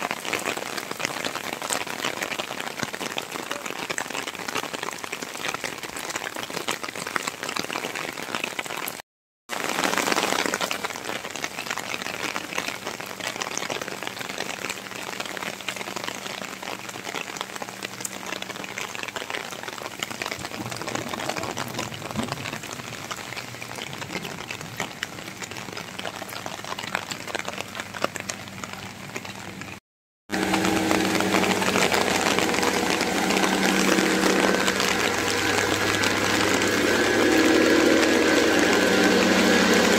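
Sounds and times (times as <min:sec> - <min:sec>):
rain on wet paving: 0:00.0 - 0:39.9
low mechanical hum: 0:30.4 - 0:39.9.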